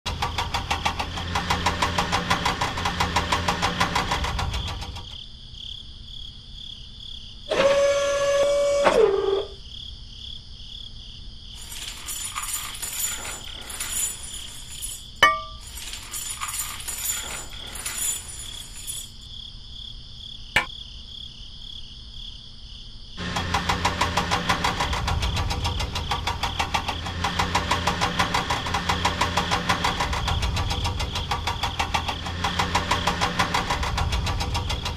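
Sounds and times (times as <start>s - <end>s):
toy engine pulsing rumble: 0.1s - 5.1s, 23.2s - 34.9s
small metal chain clinking: 11.6s - 19.2s.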